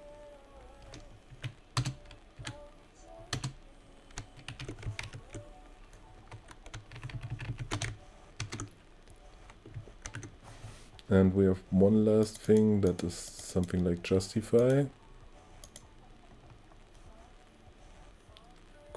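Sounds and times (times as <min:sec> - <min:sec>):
typing on keyboard: 0:00.8 - 0:02.6, 0:03.3 - 0:08.7, 0:09.6 - 0:10.3.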